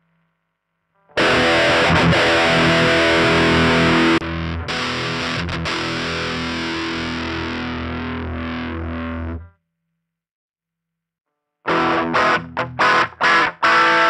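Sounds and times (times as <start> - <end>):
distorted electric guitar chords: 1.1 - 9.5, 11.7 - 14.0.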